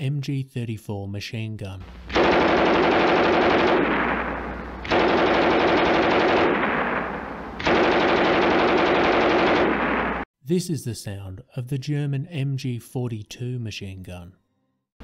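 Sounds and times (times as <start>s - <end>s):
machine gun firing automatic bursts: 2.1s - 10.2s
gunfire echo: 2.1s - 10.3s.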